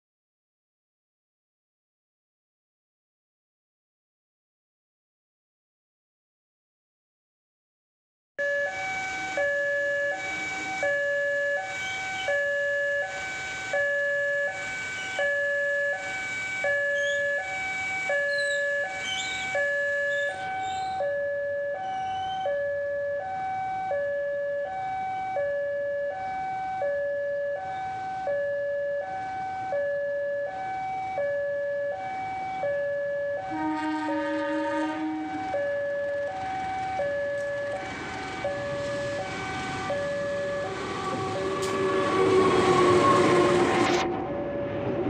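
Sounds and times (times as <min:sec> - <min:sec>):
level crossing two-tone alarm: 0:08.4 - 0:44.8.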